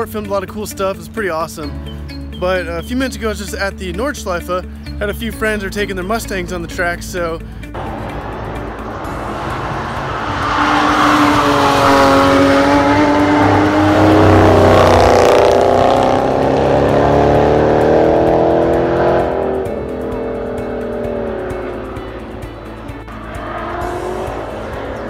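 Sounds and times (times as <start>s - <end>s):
car engine passing by: 7.7s - 25.0s.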